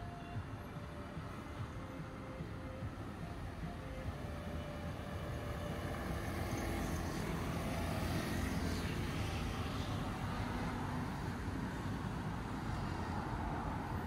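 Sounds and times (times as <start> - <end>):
street traffic noise: 0.0 - 14.0
vehicle passing close by: 5.3 - 14.0.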